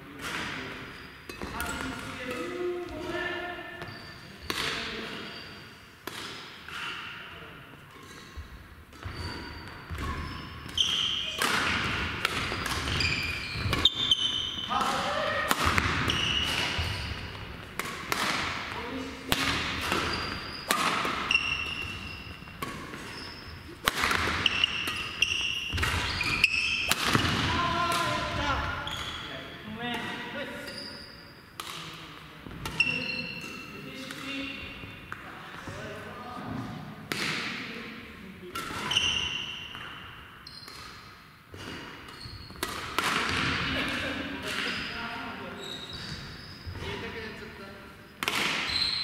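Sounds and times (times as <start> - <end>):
racket hitting shuttlecock: 0.2 - 3.2, 3.8 - 5.1, 6.0 - 7.2, 7.9 - 28.8, 31.6 - 35.4, 37.0 - 37.7, 38.5 - 44.9, 48.2 - 49.0
sneakers squeaking on court: 0.4 - 5.8, 7.9 - 14.8, 15.6 - 27.5, 28.2 - 29.7, 30.6 - 31.6, 32.4 - 35.8, 38.6 - 43.7, 44.4 - 47.4, 48.0 - 49.0.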